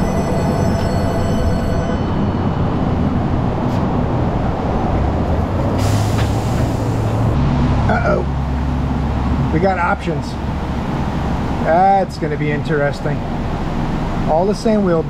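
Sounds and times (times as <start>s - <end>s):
dense rushing noise: 1.2s - 12.6s.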